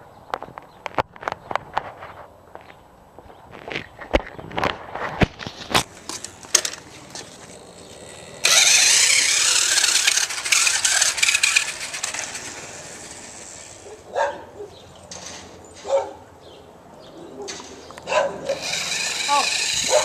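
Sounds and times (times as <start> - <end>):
toy truck motor whirring: 5.8 - 14.0, 18.4 - 20.0.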